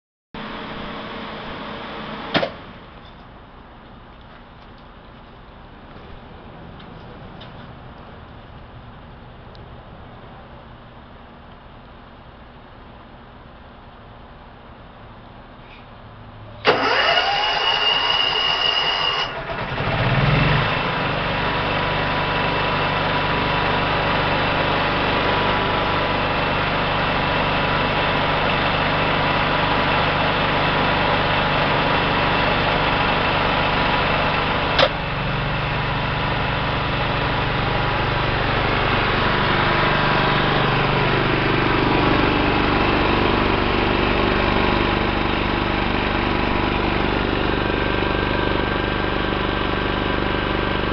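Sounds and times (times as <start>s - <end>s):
generator engine cranking and running: 16.5s - 50.9s.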